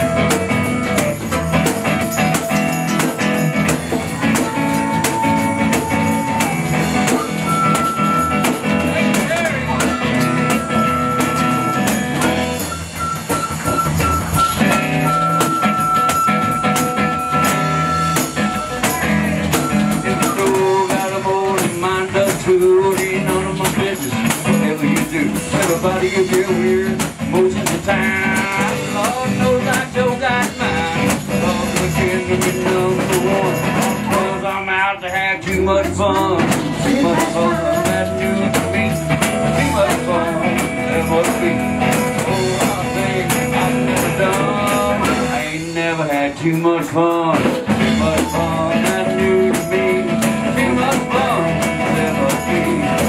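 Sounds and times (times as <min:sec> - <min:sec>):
flute playing: 0:00.0 - 0:03.0, 0:04.3 - 0:08.6, 0:09.6 - 0:20.9, 0:37.0 - 0:40.4
drums: 0:00.0 - 0:53.0
electric guitar: 0:00.0 - 0:53.0
strummed acoustic guitar: 0:00.0 - 0:53.0.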